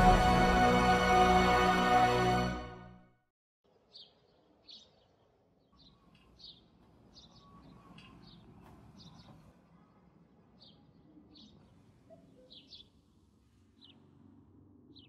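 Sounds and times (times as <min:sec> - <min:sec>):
sparrows chirping: 0:03.9 - 0:09.4, 0:10.6 - 0:13.0, 0:13.8 - 0:14.1.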